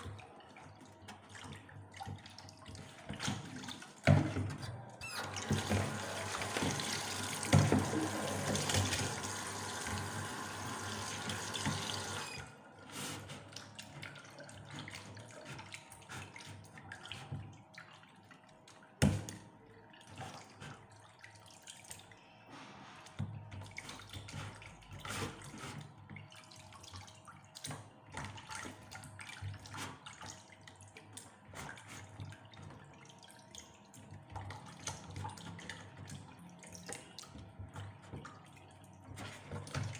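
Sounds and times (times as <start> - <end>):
tap running into metal sink: 5.3 - 12.3.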